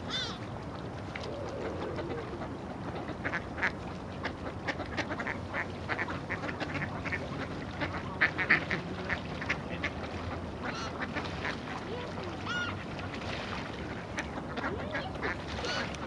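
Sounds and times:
steady low rumble: 0.0s - 12.0s
ducks quacking: 1.5s - 16.0s.

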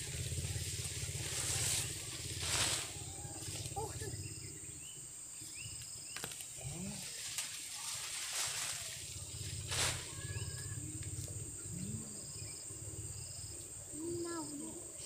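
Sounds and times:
scraping in loose soil: 0.0s - 3.8s, 6.2s - 10.8s
insect drone: 0.0s - 15.0s.

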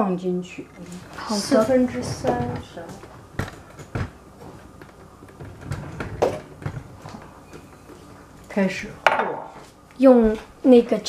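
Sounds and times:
person speaking: 0.4s - 3.1s
kitchenware knocking on tiled counter: 9.0s - 9.5s.

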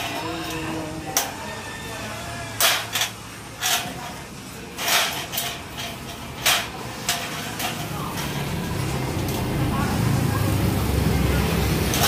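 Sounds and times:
metal channel clicks and scrapes: 2.6s - 4.2s, 4.8s - 8.6s.

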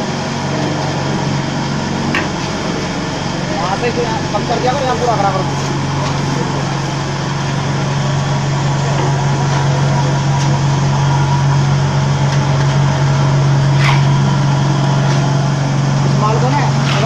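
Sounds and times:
vibrator table humming: 0.0s - 17.0s.

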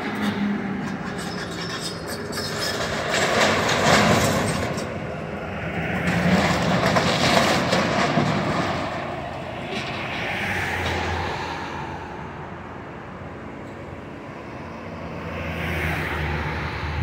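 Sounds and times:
metal scraping: 0.0s - 5.0s
debris crunching and clattering: 6.1s - 9.1s.

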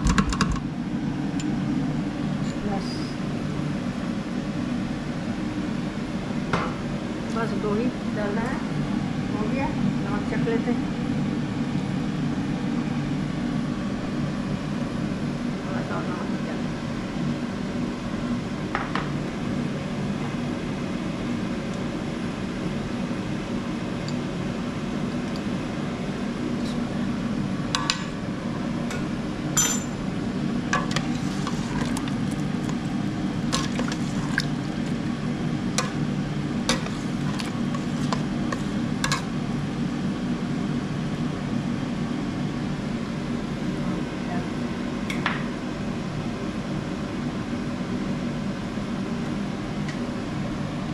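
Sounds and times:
steady low hum: 0.0s - 50.9s
ladle scraping metal pot: 30.8s - 32.9s, 33.5s - 34.9s, 36.7s - 39.3s.

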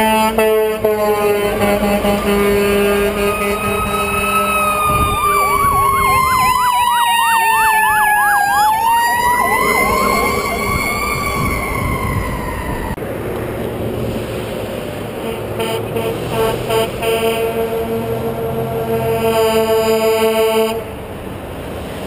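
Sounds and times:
fire truck siren wailing: 0.0s - 13.0s
fast siren yelp: 2.1s - 13.0s.

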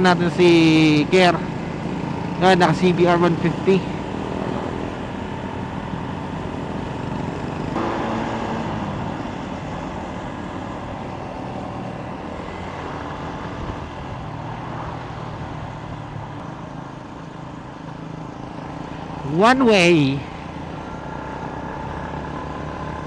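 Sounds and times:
wind and road noise: 0.0s - 23.0s
motorcycle engine revving: 6.4s - 13.8s.

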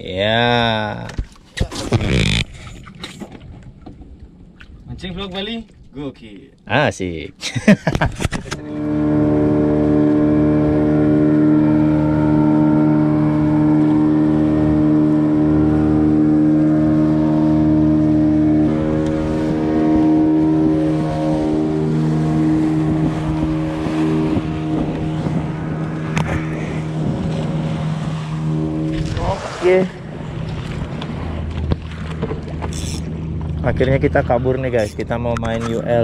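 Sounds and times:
boat engine droning: 8.5s - 36.0s.

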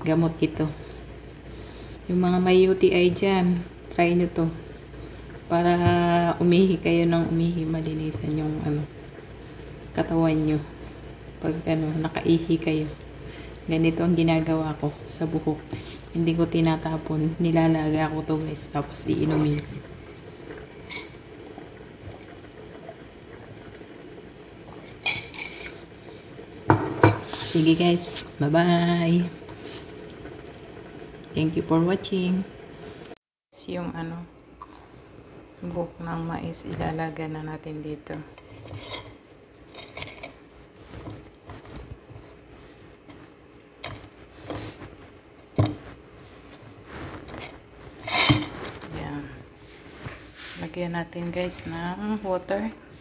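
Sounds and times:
crockery clinking: 25.0s - 25.8s
corn silk rustling and scraping: 38.4s - 50.8s.

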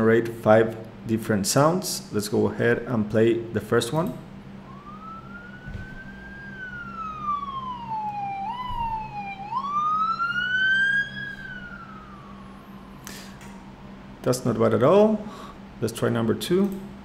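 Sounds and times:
ambulance siren wailing: 4.5s - 14.2s.

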